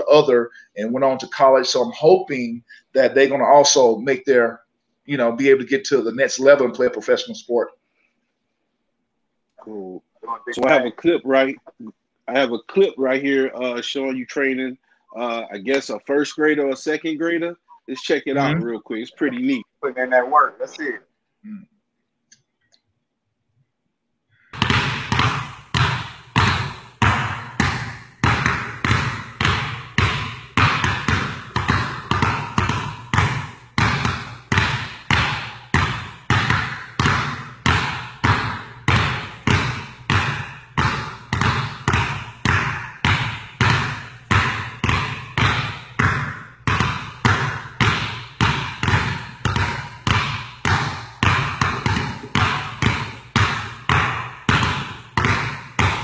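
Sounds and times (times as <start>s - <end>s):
basketballs bouncing on gym floor: 24.6s - 56.0s.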